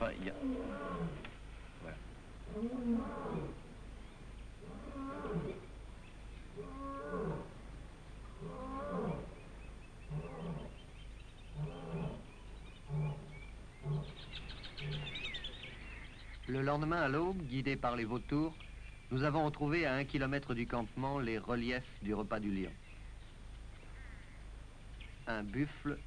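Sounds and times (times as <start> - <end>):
low steady hum: 0.0 - 26.0
lion roaring: 11.5 - 14.2.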